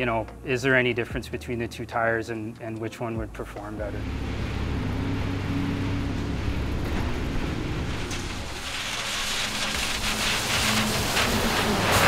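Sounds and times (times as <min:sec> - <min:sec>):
bus engine and road drone: 0:03.8 - 0:12.0
tires hissing on wet pavement: 0:04.0 - 0:12.0.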